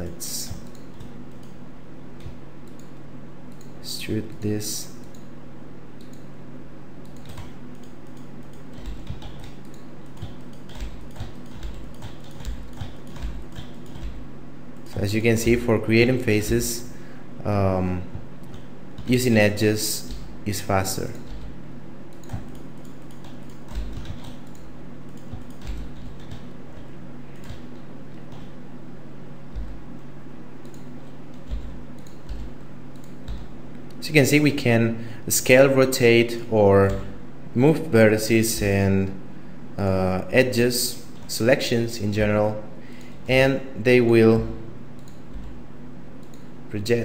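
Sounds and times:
steady low hum: 0.0 - 47.0
keyboard and mouse clicking: 2.2 - 3.8, 7.0 - 14.2, 22.1 - 26.5, 27.4 - 28.6, 30.6 - 34.0, 45.0 - 45.6, 46.2 - 46.5.

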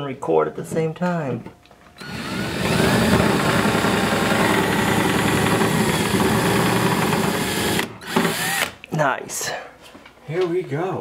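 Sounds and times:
cordless drill boring into wood: 2.0 - 8.8.

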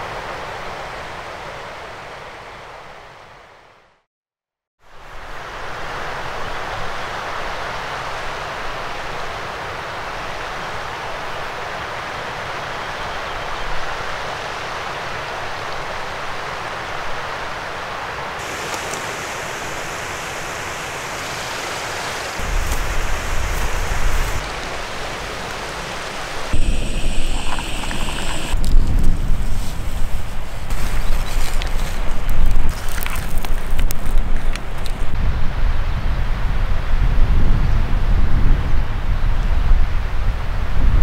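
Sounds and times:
mountain stream flowing: 5.0 - 28.6, 30.7 - 35.2
low rumbling: 22.4 - 31.2.

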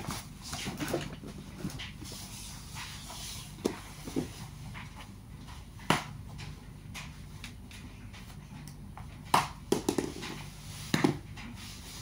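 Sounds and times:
ball bouncing on hardwood floor: 9.0 - 11.3.

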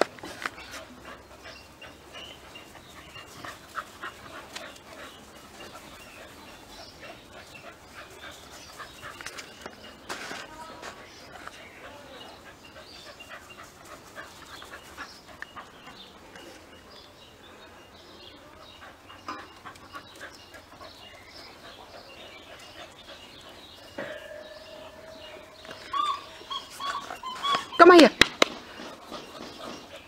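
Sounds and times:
dogs panting: 0.0 - 30.0
steady high tone: 24.0 - 27.6.

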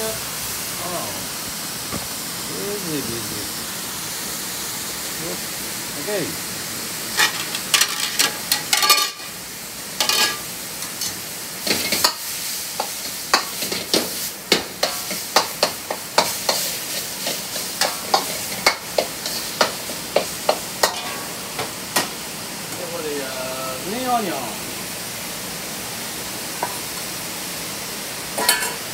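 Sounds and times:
meat sizzling in a wok: 0.0 - 28.9
metal ladle clanking on wok: 7.2 - 9.3, 10.0 - 10.4, 17.8 - 21.4, 28.4 - 28.9.

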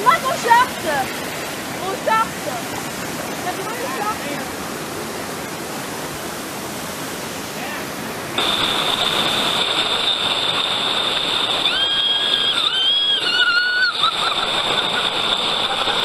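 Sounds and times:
water rushing over rocks: 0.0 - 16.0
high-pitched whine: 8.3 - 16.0
high wavering cry: 11.6 - 15.0.

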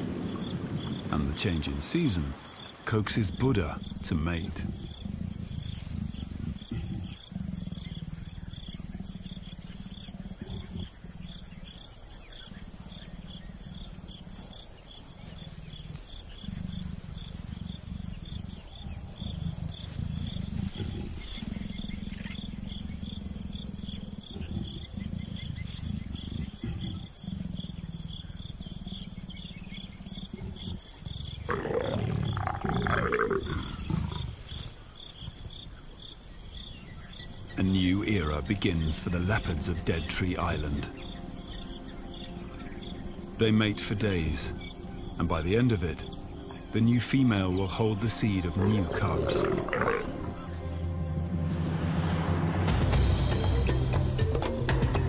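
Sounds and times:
leopards growling: 2.9 - 35.3, 36.5 - 50.9
leopard snarling call: 3.2 - 14.5, 15.3 - 34.7, 48.4 - 50.6.

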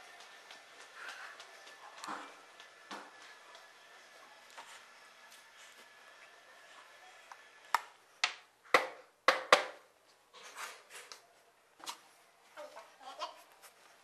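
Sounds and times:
sharp knocks of hard objects: 7.8 - 9.8.

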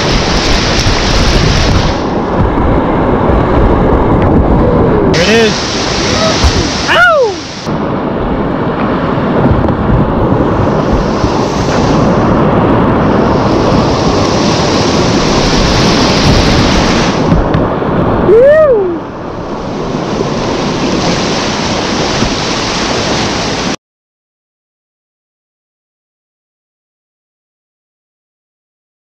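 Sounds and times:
whitewater rushing: 0.0 - 23.8
person shouting: 6.1 - 7.5, 18.3 - 19.0.

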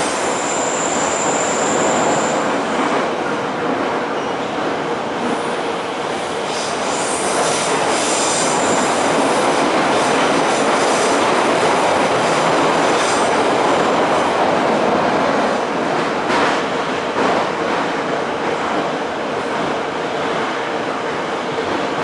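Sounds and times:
metro train running on rails: 0.0 - 22.0
high wheel squeal: 0.1 - 2.5.

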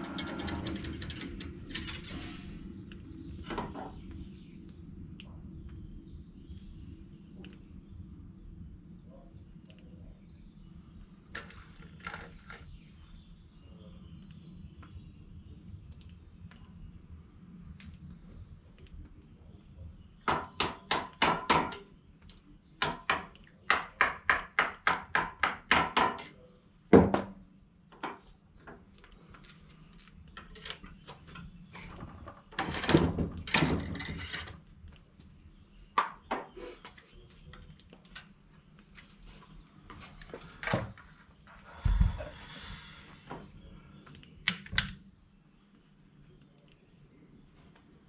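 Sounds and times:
sharp knocks and taps: 20.3 - 26.4.

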